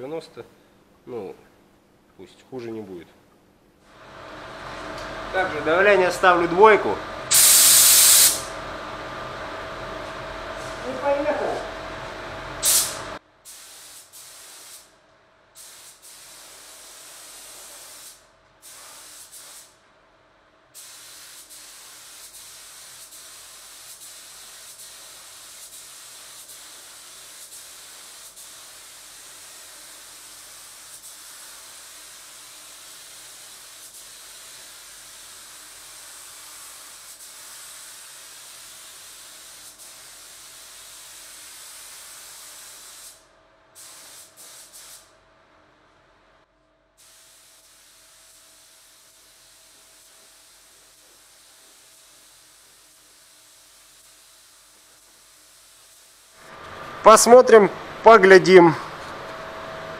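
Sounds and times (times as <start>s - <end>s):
air spray gun hissing: 4.3s - 8.6s, 12.6s - 14.9s, 15.6s - 19.8s, 20.8s - 43.2s, 43.8s - 45.1s, 47.0s - 56.8s.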